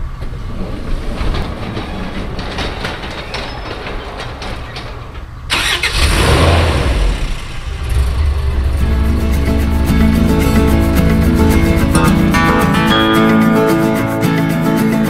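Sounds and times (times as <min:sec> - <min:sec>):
pickup truck engine starting: 0:04.8 - 0:14.9
low rumble: 0:06.1 - 0:14.1.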